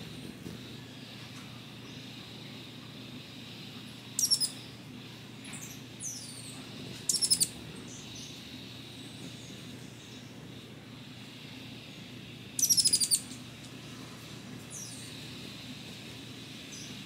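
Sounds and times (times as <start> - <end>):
low background hum: 0.0 - 17.0
hummingbird twittering: 3.2 - 10.3, 11.0 - 13.8, 14.7 - 15.9.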